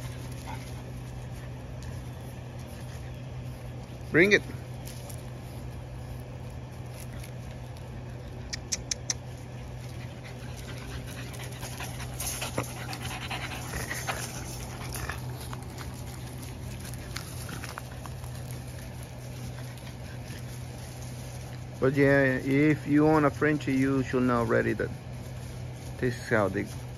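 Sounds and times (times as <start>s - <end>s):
low hum: 0.0s - 26.9s
dog panting: 9.7s - 18.5s.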